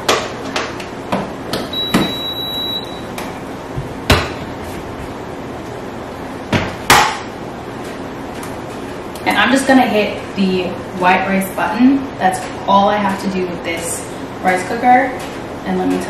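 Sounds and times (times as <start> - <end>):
short high beep: 1.8 - 3.0
sharp knocks in kitchen: 3.8 - 4.4, 6.5 - 7.2.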